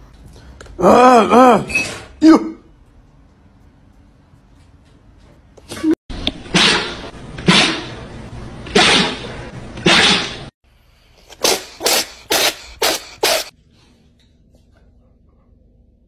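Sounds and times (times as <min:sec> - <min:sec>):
cat sneezing: 0:11.3 - 0:13.5.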